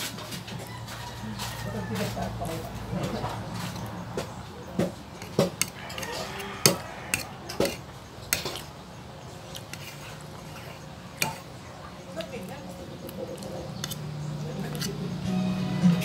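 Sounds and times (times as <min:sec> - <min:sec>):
cutlery scraping a plate: 0:03.0 - 0:08.8, 0:09.5 - 0:11.6, 0:13.2 - 0:15.0.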